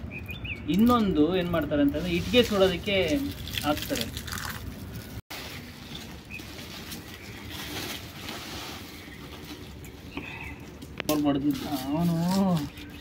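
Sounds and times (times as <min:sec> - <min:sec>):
dry shells crackling: 0:00.6 - 0:08.1, 0:10.6 - 0:13.0
plastic sack rustling: 0:02.0 - 0:10.0.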